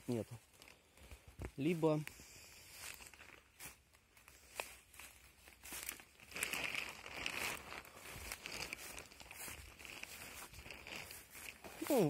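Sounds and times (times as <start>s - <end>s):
footsteps crunching undergrowth: 0.0s - 12.0s.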